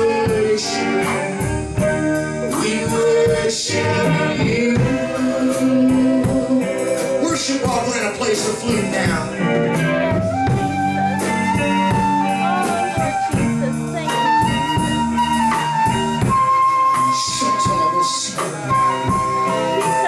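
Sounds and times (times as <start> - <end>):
bass guitar: 0.0 - 20.0
drum kit: 0.0 - 20.0
electric guitar: 0.0 - 20.0
flute melody: 0.0 - 20.0.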